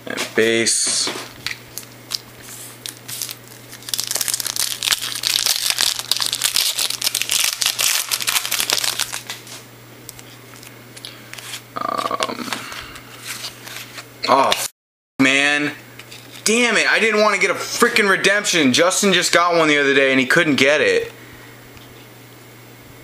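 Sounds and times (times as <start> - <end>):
plastic wrapper tearing and crinkling: 1.4 - 10.7.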